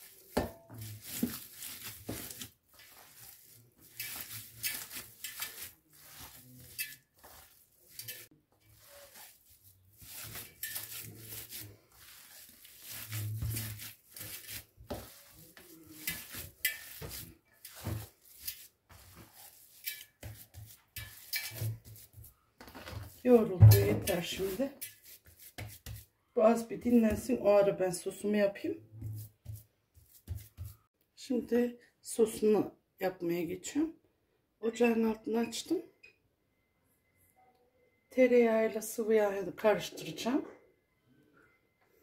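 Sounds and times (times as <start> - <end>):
wet squishing of kneaded meat: 0.0 - 22.4, 23.0 - 26.2.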